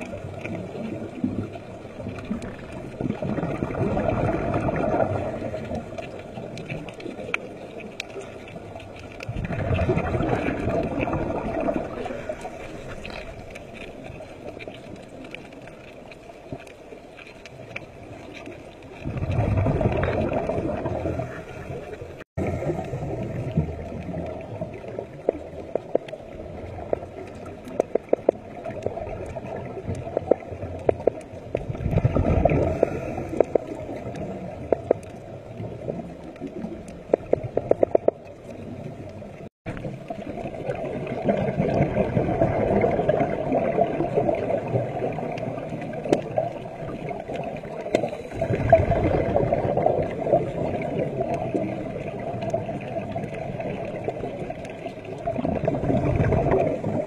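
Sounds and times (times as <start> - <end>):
muffled underwater water gurgle: 0.0 - 57.0.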